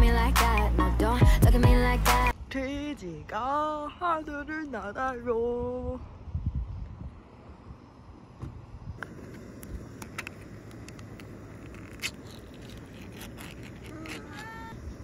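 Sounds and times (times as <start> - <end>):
metal can lid peeled back: 10.9 - 14.8.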